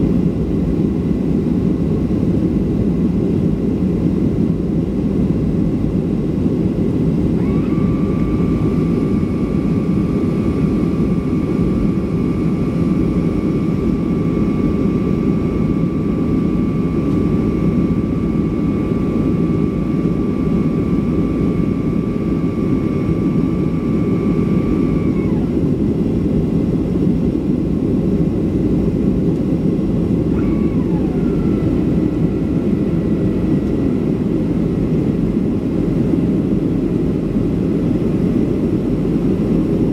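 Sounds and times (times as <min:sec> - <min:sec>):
jet engines and air rush: 0:00.0 - 0:39.9
steady whine: 0:00.0 - 0:39.9
whine falling in pitch: 0:07.2 - 0:26.5, 0:29.4 - 0:36.9.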